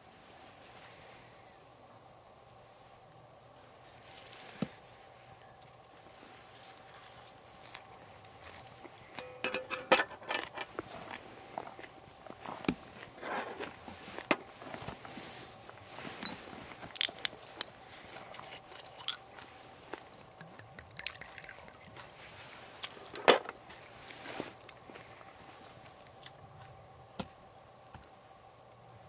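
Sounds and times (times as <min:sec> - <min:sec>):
liquid pouring into glass: 0:20.8 - 0:21.8.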